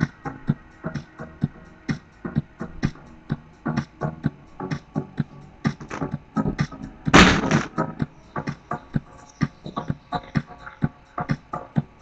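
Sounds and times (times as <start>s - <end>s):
background music: 0.0s - 12.0s
punchy drum hits: 5.9s - 7.8s.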